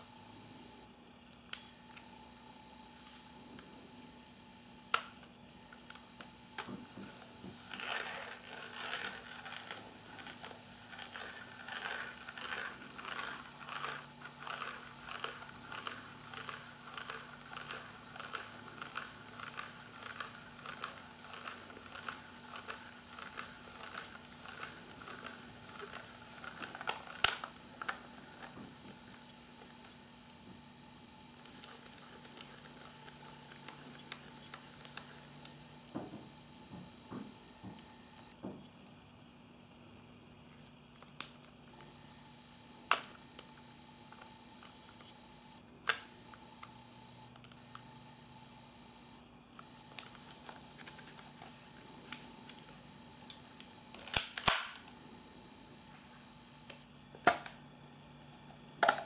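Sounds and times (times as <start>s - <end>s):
camera film rewind ratcheting: 7.7s - 27.5s.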